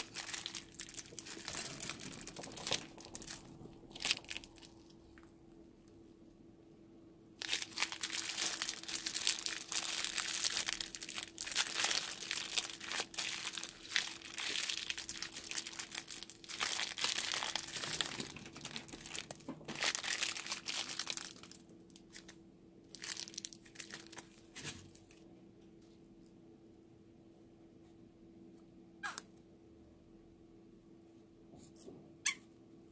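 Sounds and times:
plastic piping bag crinkling: 0.0 - 5.3, 7.4 - 25.2.

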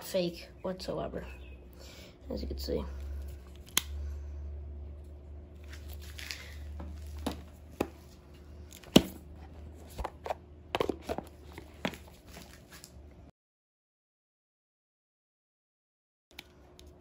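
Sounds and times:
low steady hum: 0.0 - 13.3.

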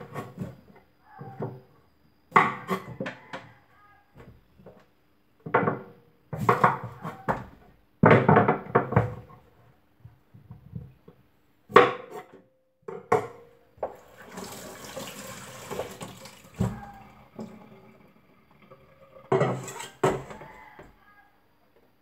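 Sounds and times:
kitchen things clattering in a sink: 12.9 - 20.6
water running from a tap: 13.9 - 20.0.

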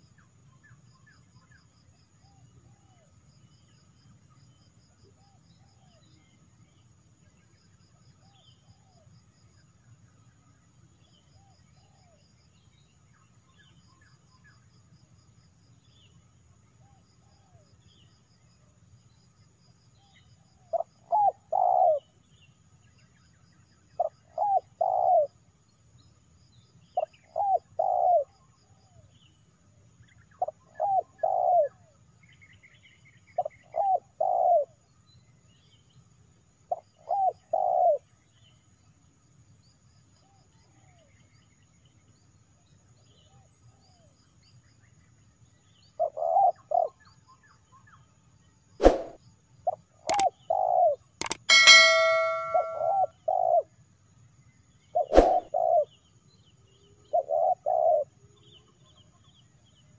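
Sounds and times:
sharp clicks: 51.2 - 52.8.

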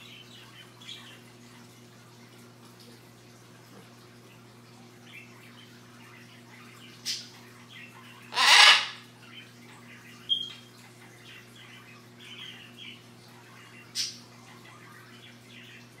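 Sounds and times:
macaw squawking: 8.3 - 9.0.

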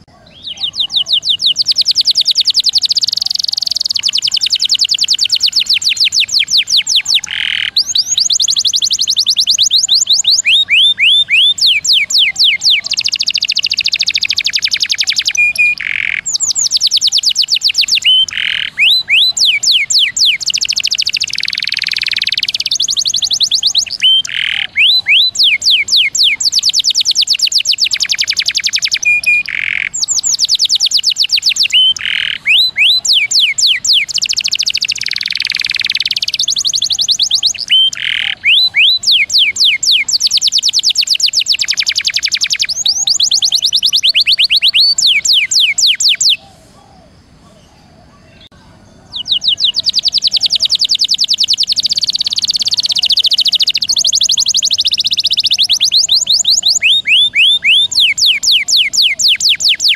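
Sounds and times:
canary singing: 0.0 - 59.9.

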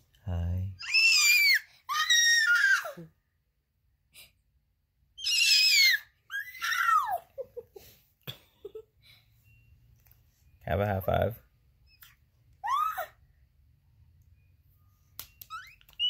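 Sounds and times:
baby squealing: 0.8 - 3.0, 5.2 - 7.3, 11.9 - 13.2, 15.5 - 16.0.

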